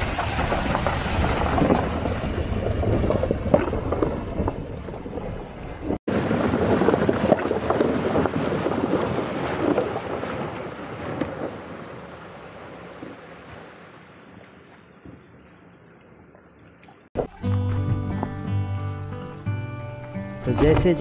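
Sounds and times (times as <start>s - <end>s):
water splashing around car tyres: 0.0s - 15.4s.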